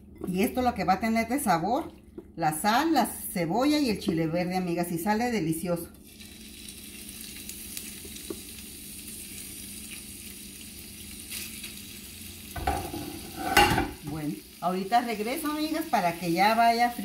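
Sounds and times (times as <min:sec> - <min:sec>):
meat sizzling in frying pan: 0:06.0 - 0:17.0.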